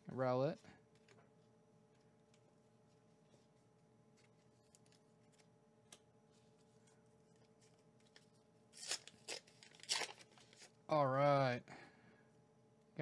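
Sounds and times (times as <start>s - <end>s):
wrapper tearing: 8.0s - 10.8s.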